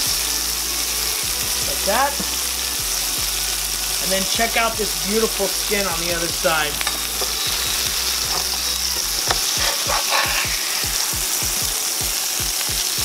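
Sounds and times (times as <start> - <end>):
oil sizzling in a skillet: 0.0 - 13.0
metal spatula sliding under fish: 6.8 - 10.9.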